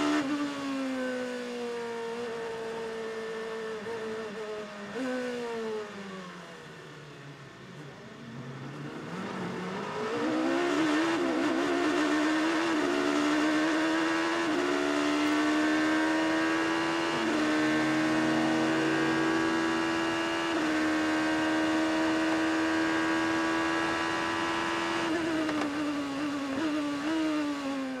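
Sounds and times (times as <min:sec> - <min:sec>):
race car engine at speed: 0:00.0 - 0:28.0.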